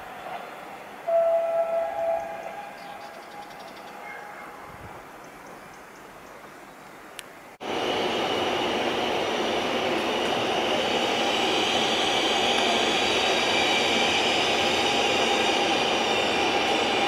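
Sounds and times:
high squeal of train wheels: 1.1 - 5.0, 10.2 - 17.0
train coaches rumbling: 7.6 - 17.0.

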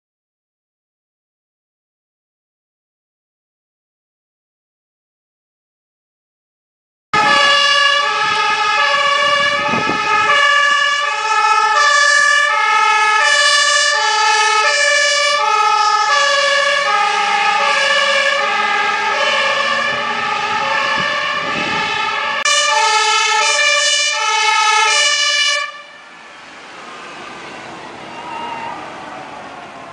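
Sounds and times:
truck engine: 7.2 - 29.9
two-tone fire engine siren: 7.2 - 29.9.

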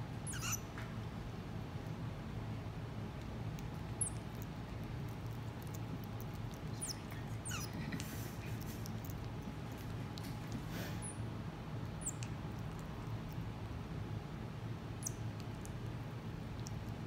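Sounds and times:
marmoset high squeaks: 0.2 - 0.7, 4.0 - 4.2, 6.7 - 7.9, 11.0 - 11.2, 12.0 - 12.3
chewing clicks: 3.1 - 10.7, 11.8 - 13.8, 15.0 - 17.0.

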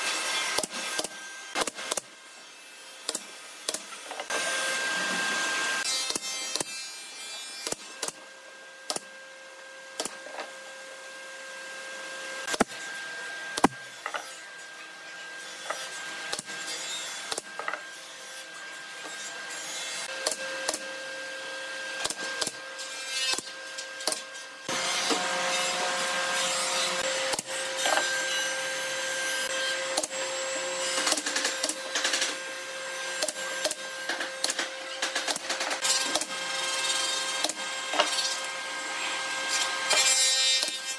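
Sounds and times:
pneumatic nailer shots: 0.1 - 2.1, 12.5 - 12.8, 13.6 - 14.2, 22.0 - 22.6.

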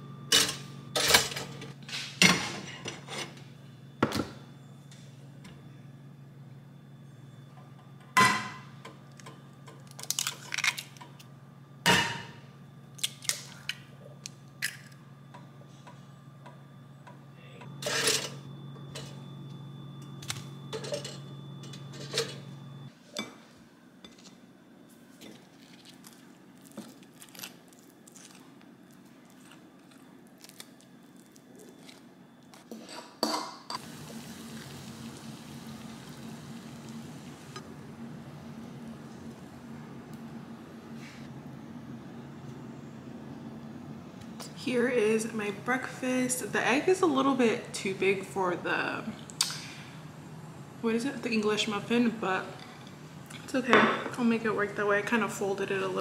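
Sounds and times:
steady low hum: 0.0 - 56.0.

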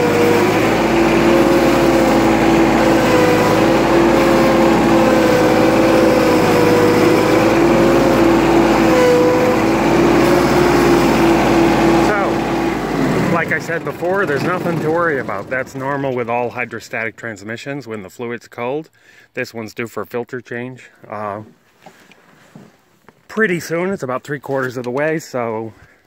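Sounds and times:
diesel engine running: 0.0 - 17.0
tractor transmission whining: 0.0 - 18.1.

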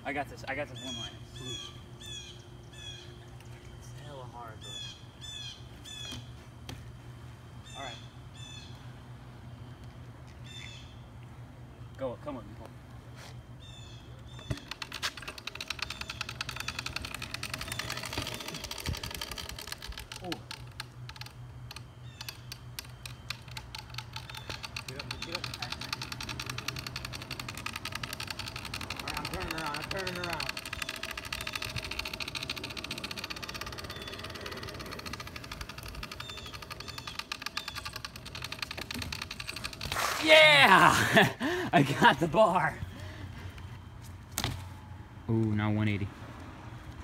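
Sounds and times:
bike freewheel hub ticking: 13.6 - 41.3
tyres rumbling on asphalt: 24.1 - 41.6.

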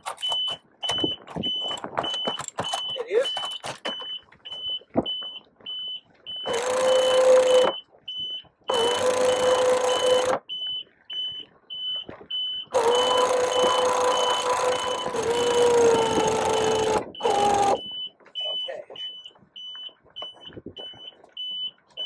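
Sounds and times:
electronic warning beep: 0.0 - 22.0
hydraulic system hum: 6.5 - 7.8, 8.7 - 10.4, 12.8 - 17.9.

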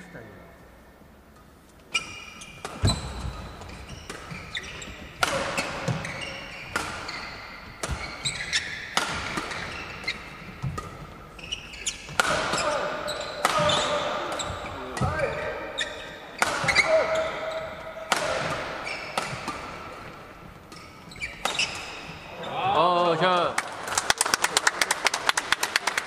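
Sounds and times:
rackets striking shuttlecock: 1.3 - 15.4, 16.3 - 22.2
shoes squeaking on floor: 1.7 - 22.6.

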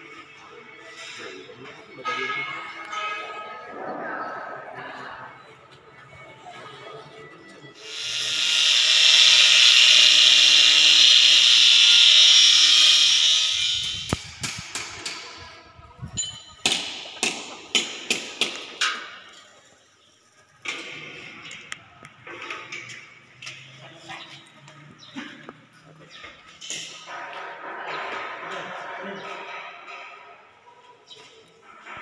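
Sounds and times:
handheld power tool running: 7.8 - 14.6.

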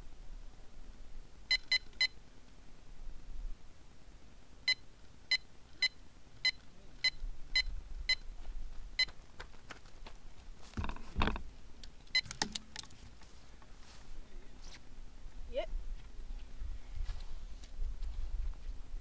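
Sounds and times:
bite alarm beeps: 1.5 - 2.2, 4.7 - 8.2.

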